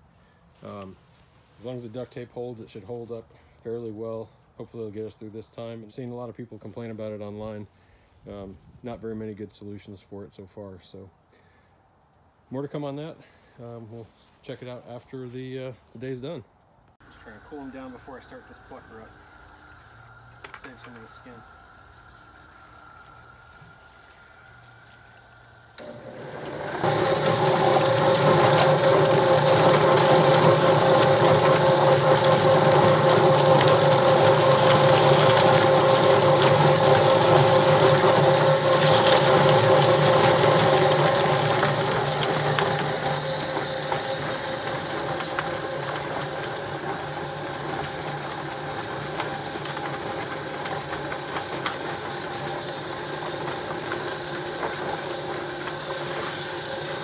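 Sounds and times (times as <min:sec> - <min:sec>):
chicken plucker motor running: 0:17.0 - 0:57.0
hose spraying water: 0:17.0 - 0:57.0.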